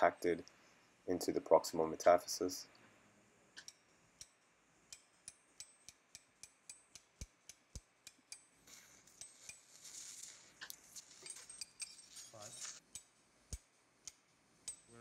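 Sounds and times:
soft hiss: 0.0 - 4.9, 8.6 - 15.0.

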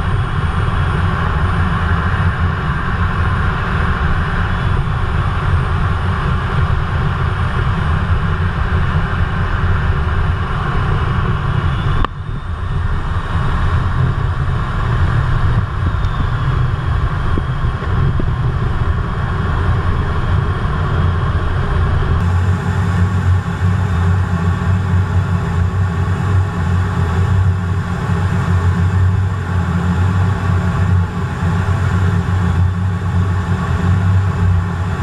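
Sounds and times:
jet cockpit rumble and airflow: 0.0 - 35.0.

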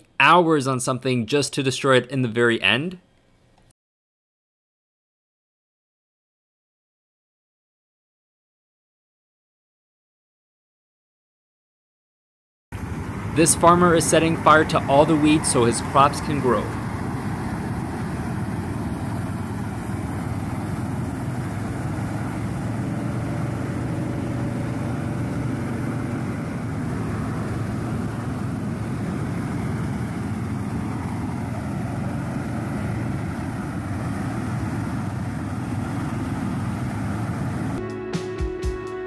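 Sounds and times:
burner jets rushing: 12.8 - 37.8
tractor engine running: 12.8 - 37.8
music with a beat: 37.8 - 39.0.

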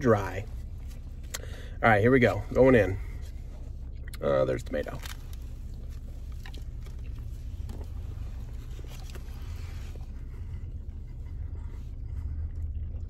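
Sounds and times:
car idling rumble: 0.0 - 13.0
faint chewing: 3.2 - 13.0.

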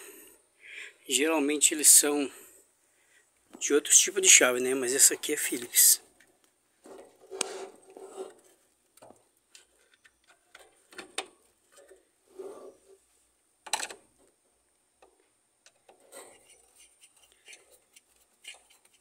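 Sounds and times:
small clicks and scrapes: 6.2 - 13.0, 15.0 - 19.0.

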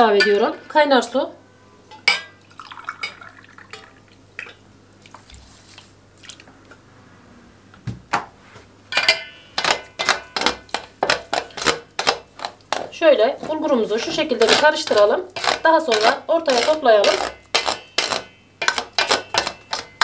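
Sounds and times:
water pouring and splashing: 2.5 - 6.5
metal spoon scraping tray: 12.8 - 20.0.

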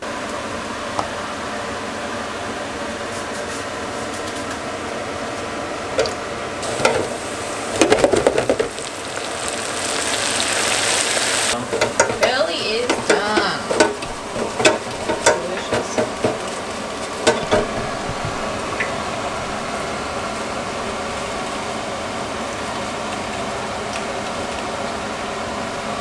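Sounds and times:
oil sizzling in deep fryer: 0.0 - 26.0
metal basket clinking: 11.6 - 18.0.

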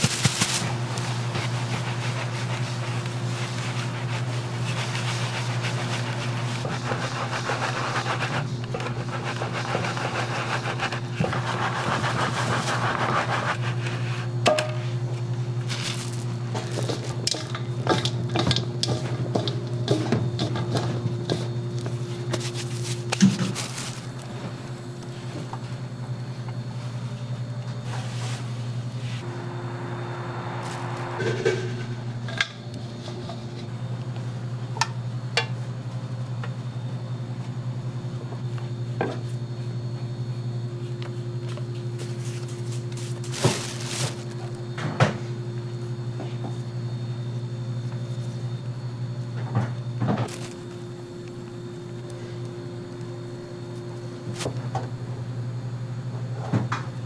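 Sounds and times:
low electrical machine hum: 0.0 - 57.0
higher steady tone: 29.2 - 33.6.

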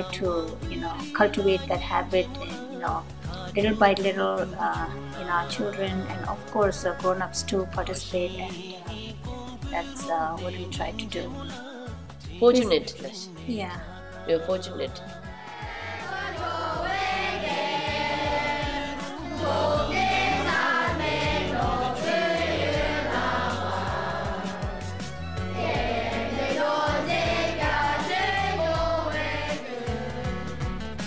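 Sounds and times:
children's choir singing: 15.3 - 30.6.

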